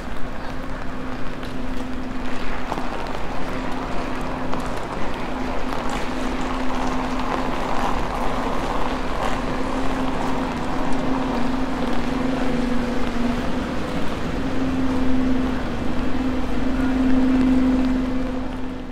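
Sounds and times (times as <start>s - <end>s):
city noise: 0.0s - 18.9s
rain: 0.0s - 18.9s.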